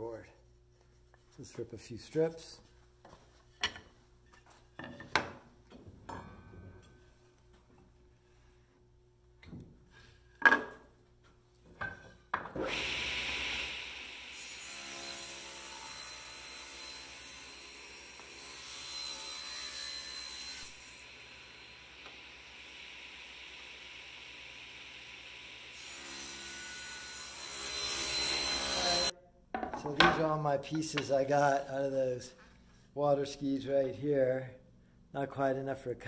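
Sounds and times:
table saw cutting wood: 0:12.6 - 0:29.1.

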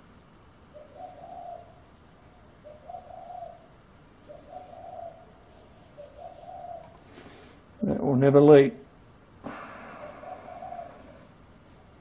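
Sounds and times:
dove cooing: 0:00.7 - 0:07.5, 0:09.5 - 0:11.4.

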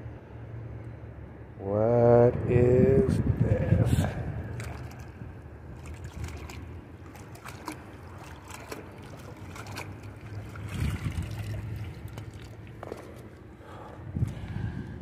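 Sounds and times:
low steady rumble: 0:00.0 - 0:15.0
water trickling and dripping: 0:04.5 - 0:13.5.

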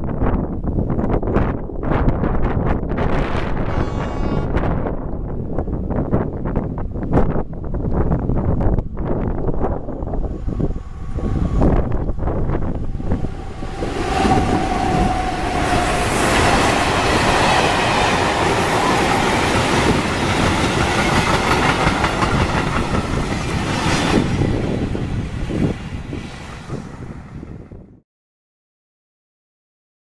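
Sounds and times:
train wheels clattering on rails: 0:13.9 - 0:24.7.

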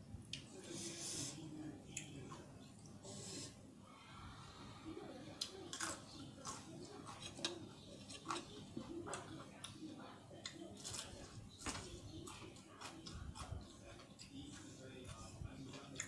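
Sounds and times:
chewing food close up: 0:05.4 - 0:16.0.

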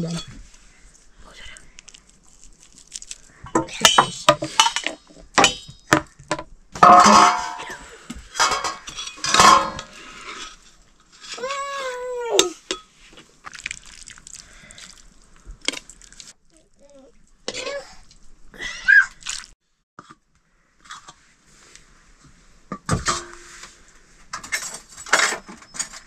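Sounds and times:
metal pots clinking and clattering: 0:03.5 - 0:10.6, 0:22.7 - 0:23.6, 0:24.3 - 0:26.0.

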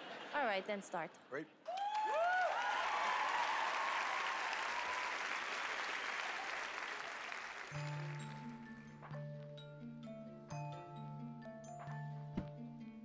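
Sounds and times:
whoops: 0:01.7 - 0:07.1
audience applauding and cheering: 0:01.7 - 0:08.8
music: 0:07.5 - 0:13.0.

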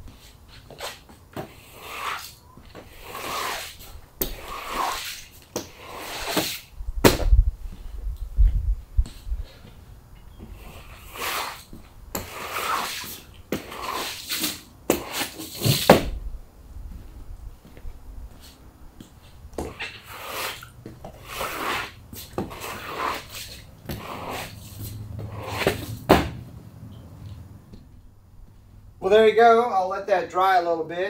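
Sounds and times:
squeegee swishing water on floor: 0:02.9 - 0:06.7, 0:19.7 - 0:26.0.

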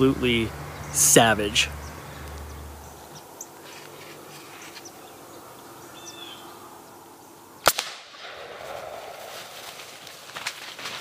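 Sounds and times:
faint bird chirps: 0:04.5 - 0:07.4.

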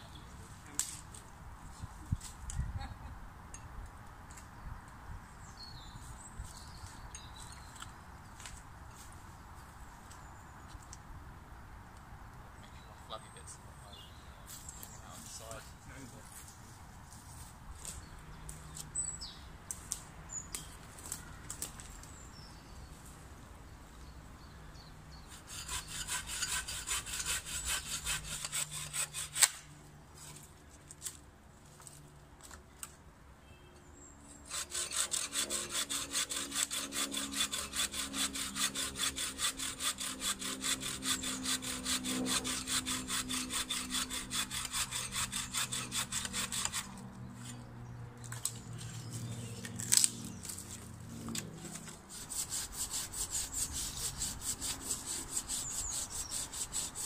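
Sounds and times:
branch cracking: 0:19.7 - 0:22.2, 0:49.6 - 0:52.0
bow saw cutting branch: 0:25.2 - 0:31.2, 0:34.4 - 0:47.6, 0:48.3 - 0:57.0.

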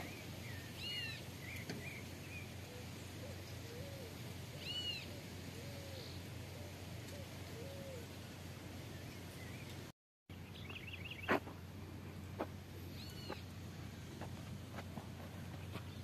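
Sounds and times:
small bird chirps: 0:00.0 - 0:02.5, 0:08.9 - 0:11.4, 0:12.9 - 0:13.5
bird double chirp: 0:13.0 - 0:13.4.

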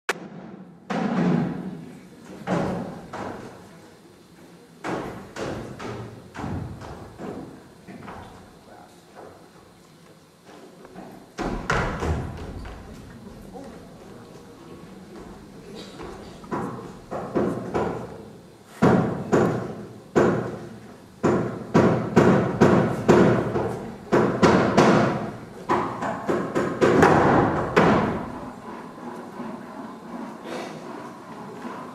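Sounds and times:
heavy thumps on a stage floor: 0:04.8 - 0:08.4, 0:11.4 - 0:13.6, 0:21.2 - 0:28.8
heavy drum strikes: 0:18.9 - 0:29.0.

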